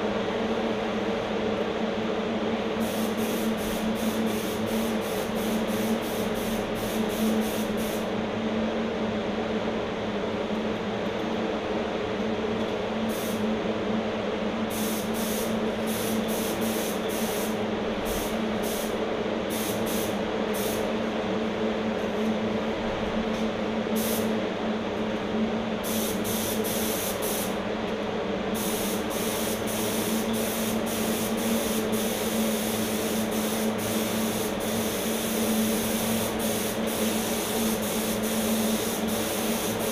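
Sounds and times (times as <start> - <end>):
air compressor motor hum: 0.0 - 8.4, 12.6 - 39.9
spray gun hissing: 2.8 - 8.1, 13.1 - 13.4, 14.7 - 20.9, 24.0 - 24.3, 25.8 - 27.6, 28.6 - 39.9.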